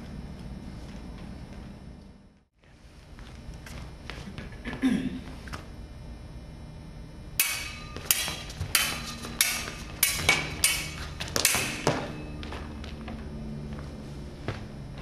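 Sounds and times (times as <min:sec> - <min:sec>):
stage swords clashing: 0:07.4 - 0:12.4.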